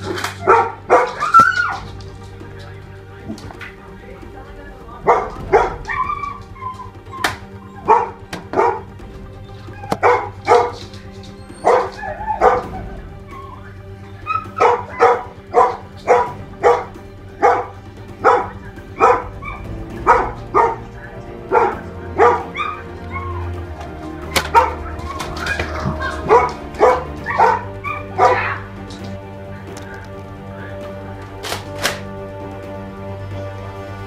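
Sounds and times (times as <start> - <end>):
dog barking: 0.0 - 1.9, 5.0 - 9.0, 9.7 - 13.6, 14.2 - 30.8.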